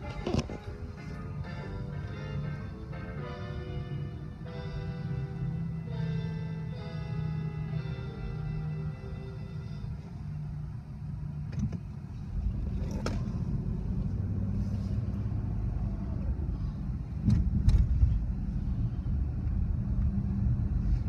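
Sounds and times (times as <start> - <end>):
car engine and road rumble: 0.0 - 21.0.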